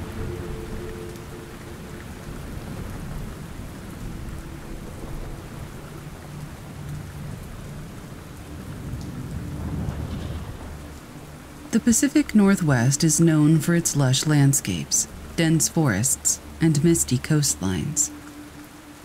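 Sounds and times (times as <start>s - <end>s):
low thunder rumbling: 0.0s - 14.4s
steady rain: 0.0s - 19.0s.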